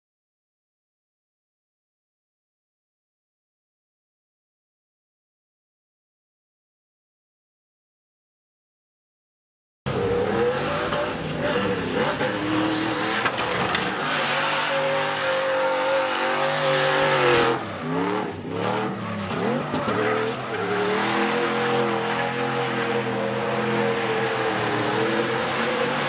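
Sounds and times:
car engine revving high: 9.9s - 26.0s
tyres squealing: 9.9s - 26.0s.

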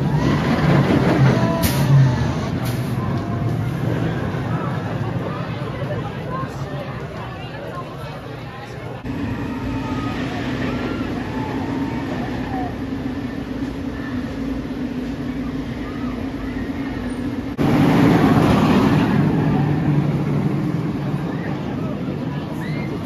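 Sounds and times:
faint crowd voices: 0.0s - 23.0s
roller coaster train on track: 0.0s - 23.0s
low mechanical hum: 8.7s - 23.0s.

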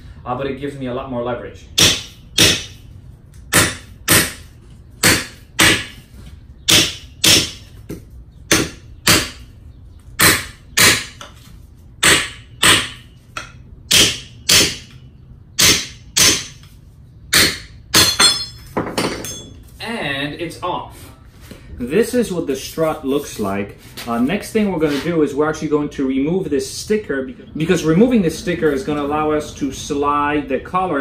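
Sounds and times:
hammer striking metal: 1.8s - 2.8s, 3.5s - 4.4s, 5.0s - 6.0s, 6.7s - 7.6s, 8.5s - 9.4s, 12.0s - 15.0s, 15.6s - 16.7s, 17.3s - 19.5s
metallic ringing: 17.9s - 19.7s.

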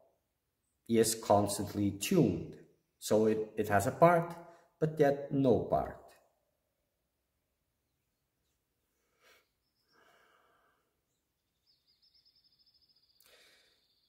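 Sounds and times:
faint breath: 8.9s - 11.0s, 13.2s - 14.0s.

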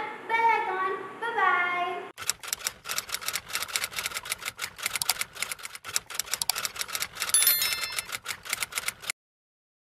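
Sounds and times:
bright bell-like chime: 7.4s - 8.1s.

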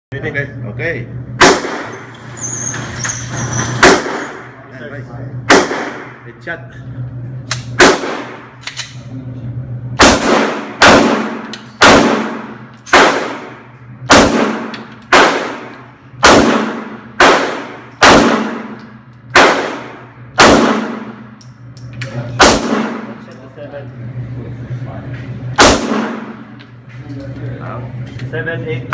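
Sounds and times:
pistol shots echoing indoors: 1.4s - 2.1s, 3.8s - 4.5s, 5.5s - 6.2s, 7.5s - 8.9s, 10.0s - 21.4s, 22.4s - 23.2s, 25.6s - 26.6s.

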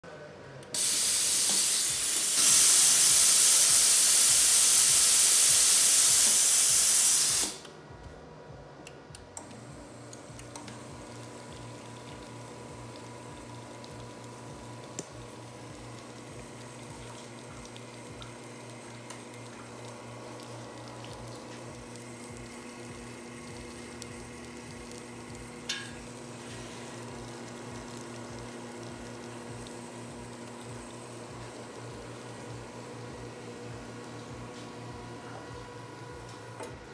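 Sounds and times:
espresso machine humming: 0.7s - 7.6s, 9.3s - 36.9s
espresso machine steam hiss: 0.8s - 7.6s, 21.4s - 36.6s
water pouring: 10.8s - 25.4s.

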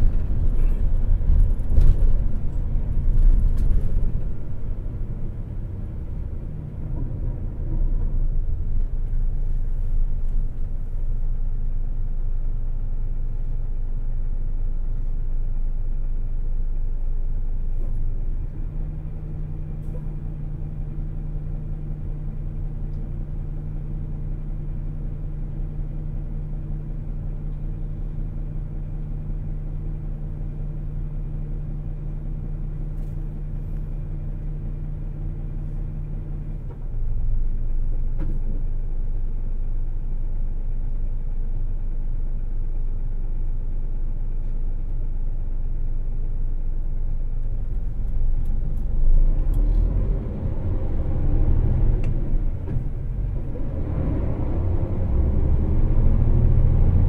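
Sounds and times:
road noise: 0.0s - 13.5s, 46.9s - 57.0s
bus diesel engine: 0.0s - 57.0s.

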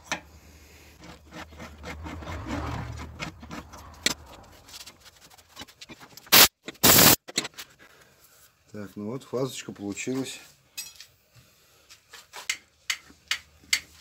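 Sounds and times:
countersink cutter scraping metal: 1.0s - 4.5s
short bursts of rushing noise: 6.3s - 7.2s.

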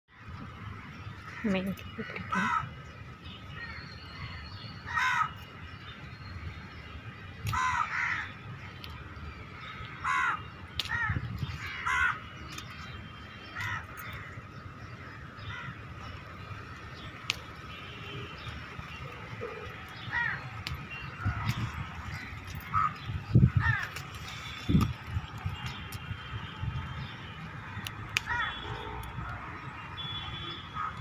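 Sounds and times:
crows cawing: 1.3s - 2.7s, 3.6s - 5.4s, 7.5s - 8.4s, 9.7s - 12.3s, 13.5s - 14.4s, 15.0s - 15.8s, 19.4s - 20.5s, 21.2s - 24.6s, 27.6s - 29.4s, 30.6s - 31.0s.

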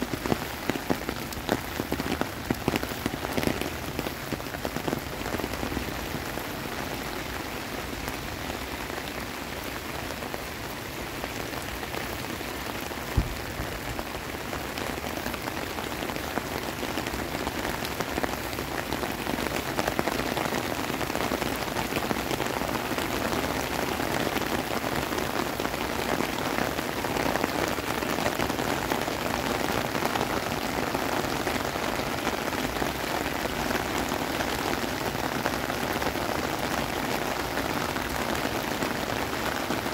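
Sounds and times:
heavy rain falling: 0.0s - 39.9s
low thump: 13.2s - 13.6s.

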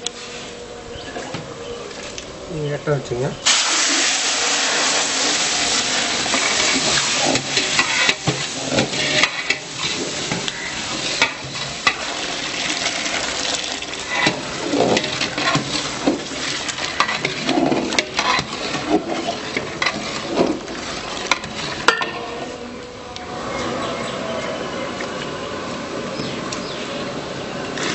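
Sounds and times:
bubbling hiss of cooking: 3.4s - 22.7s
metal ladle scraping a pot: 5.3s - 22.6s.

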